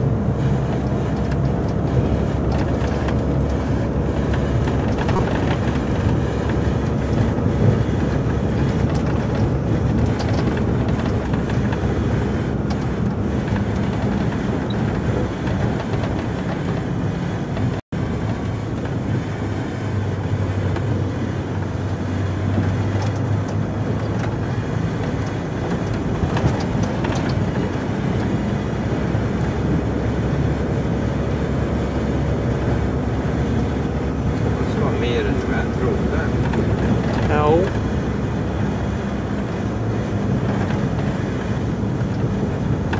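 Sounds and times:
diesel engine drone: 0.0 - 42.9
road noise: 0.0 - 42.9.

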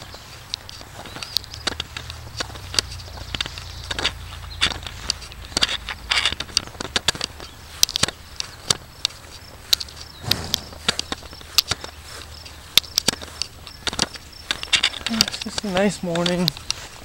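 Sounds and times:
footsteps on grass: 0.0 - 17.0
steady low rumble: 1.3 - 12.8.

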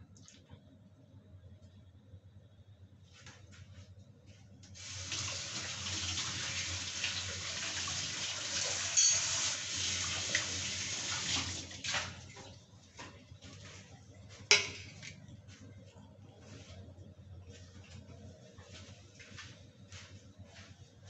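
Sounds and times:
water running: 4.7 - 13.8.

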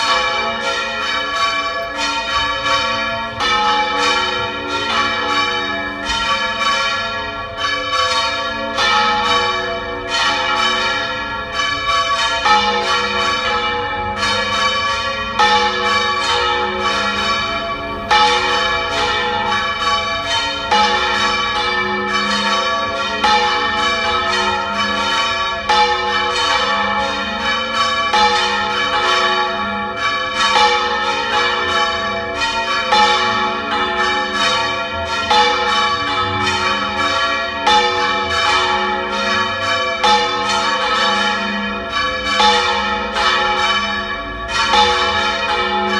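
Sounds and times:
church bells ringing: 0.0 - 45.9.

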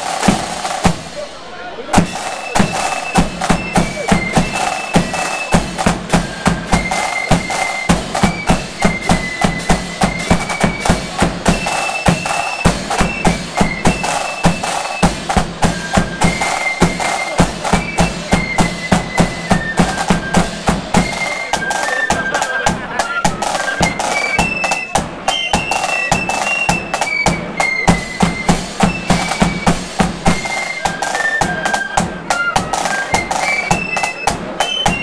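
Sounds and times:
bass drum beat: 0.0 - 21.1, 25.0 - 30.6
cymbals: 0.0 - 35.0
flutes playing melody: 0.0 - 35.0
side drums rattling: 0.0 - 35.0.

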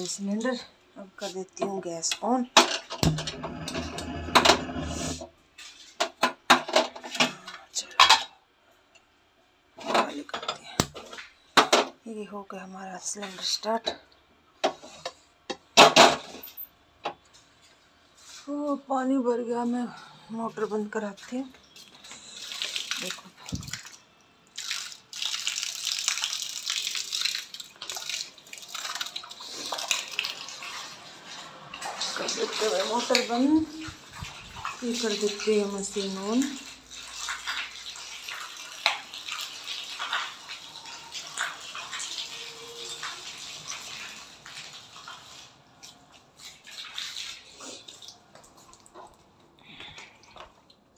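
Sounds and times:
water splashing onto tiled floor: 21.0 - 50.8.

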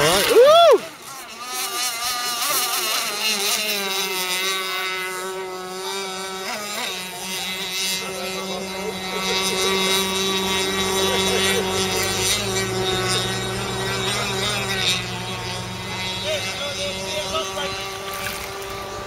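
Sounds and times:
model boat engine whine: 0.0 - 19.0.

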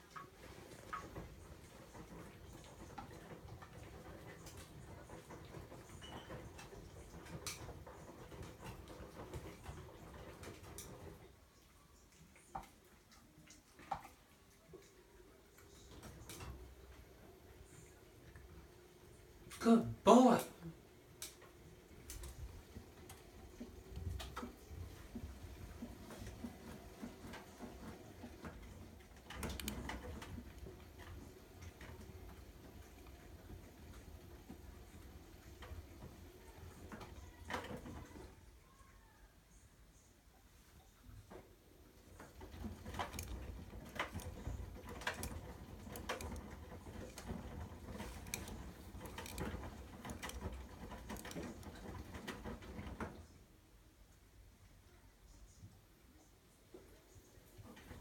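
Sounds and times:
laundry sloshing and thumping: 0.0 - 11.5, 21.0 - 38.4, 41.3 - 53.5
washing machine drum turning: 21.1 - 38.3, 42.0 - 53.2
washing machine drum tumbling: 42.0 - 53.3.

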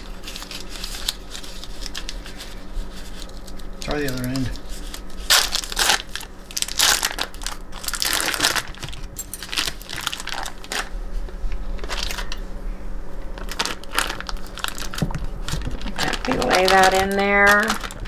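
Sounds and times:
foil wrapper crinkling: 0.0 - 11.0, 11.6 - 12.4, 13.3 - 18.0.

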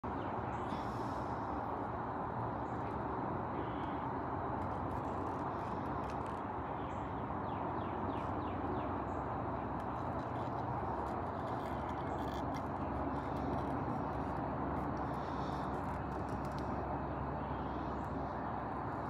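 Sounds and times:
distant traffic hum: 0.0 - 19.0
faint bird chirps: 3.5 - 4.1.

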